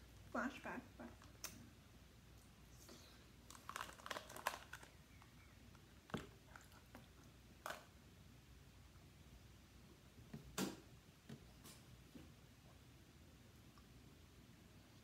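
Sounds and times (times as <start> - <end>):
small clicks and crackles: 3.4 - 7.9.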